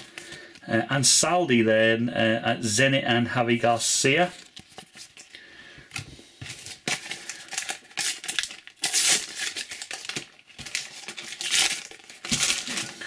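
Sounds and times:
sticker packet crinkling: 6.5s - 13.0s.

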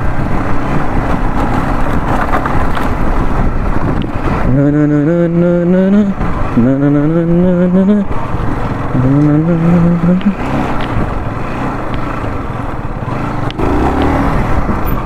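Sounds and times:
motorcycle engine: 0.0s - 15.0s
wind and road noise: 0.0s - 15.0s.

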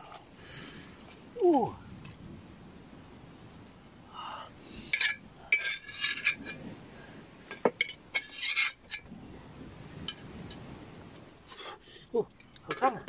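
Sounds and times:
metal spoon scraping metal pot: 4.9s - 6.6s, 7.8s - 9.1s.

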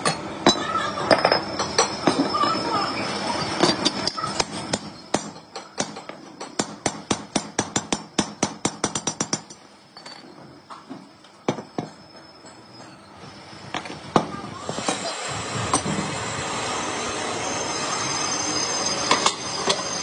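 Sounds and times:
hammer striking steel: 4.1s - 9.6s.

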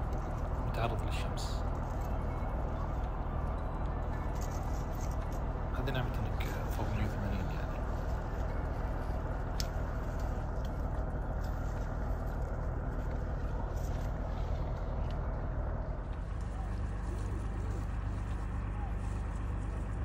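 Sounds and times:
low rumbling noise: 0.0s - 20.0s.

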